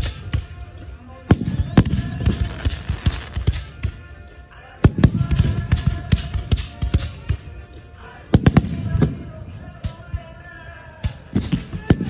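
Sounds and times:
fireworks bangs: 1.3s - 3.8s.

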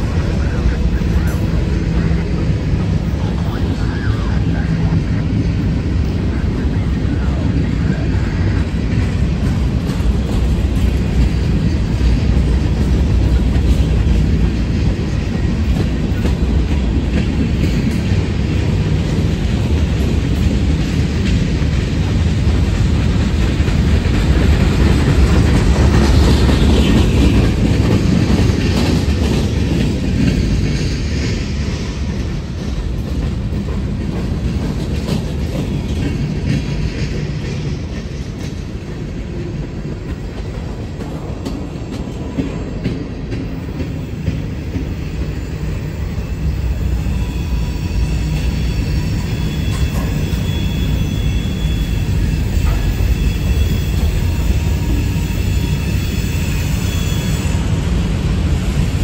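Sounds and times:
train wheels rumbling on rails: 0.0s - 59.0s
high-pitched wheel squeal: 47.0s - 57.7s.

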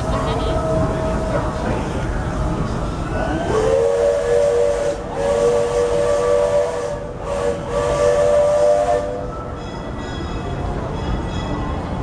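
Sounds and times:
steam locomotive whistle: 3.2s - 9.6s.

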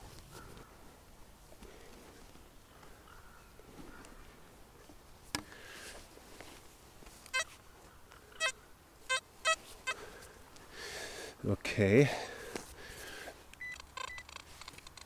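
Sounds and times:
metal detector short beeps: 13.6s - 14.2s.

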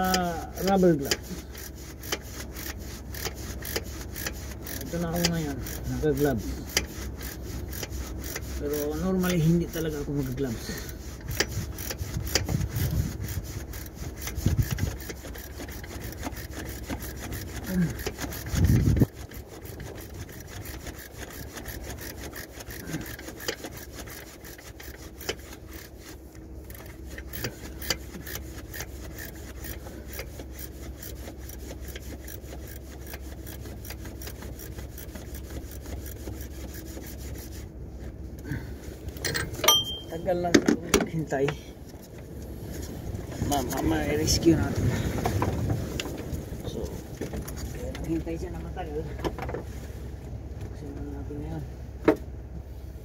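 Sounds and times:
ratchet wrench clicking: 0.0s - 9.5s, 11.2s - 26.0s, 26.6s - 36.8s
cloth brushing microphone: 0.0s - 23.0s, 23.6s - 39.0s, 42.0s - 48.9s
rubbing and knocks: 0.0s - 38.2s.

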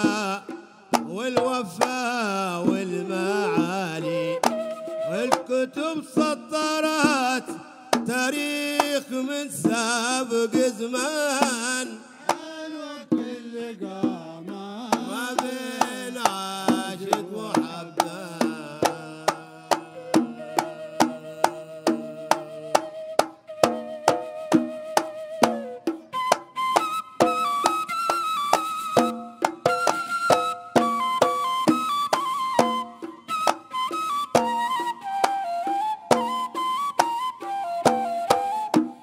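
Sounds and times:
hand drums: 0.0s - 39.0s
wavering melody instrument: 23.7s - 38.7s.

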